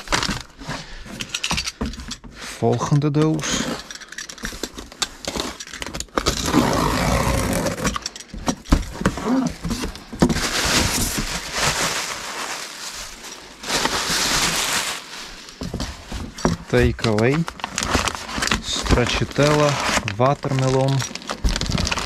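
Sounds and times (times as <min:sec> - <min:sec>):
cardboard scraping and rustling: 0:06.2 - 0:08.0, 0:08.6 - 0:22.0.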